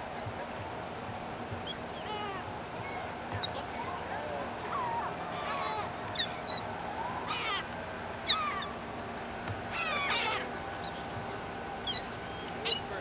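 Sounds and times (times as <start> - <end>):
birds calling squeakily: 1.6 - 4.0, 4.6 - 8.8, 9.7 - 13.0.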